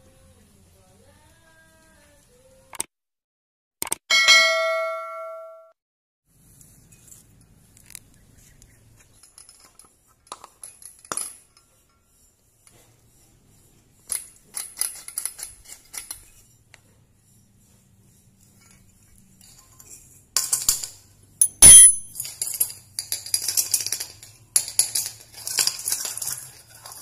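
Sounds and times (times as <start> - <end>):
bell chime: 4.1 - 5.7
glass and metal clinks: 4.1 - 5.7, 19.4 - 24.0.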